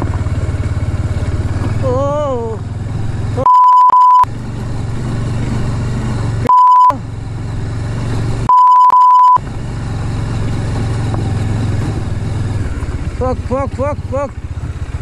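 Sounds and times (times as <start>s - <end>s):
motorcycle engine running: 0.0s - 15.0s
censor bleep: 3.4s - 4.3s, 6.4s - 7.0s, 8.5s - 9.4s.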